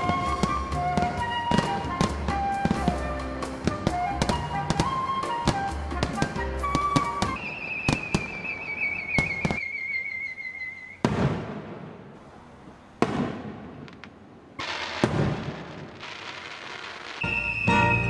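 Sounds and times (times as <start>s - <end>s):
falling firework whistle: 0.0s - 11.3s, 14.6s - 18.0s
firework bursts banging: 0.0s - 18.0s
sharp firework cracks: 6.8s - 10.2s, 10.9s - 18.0s.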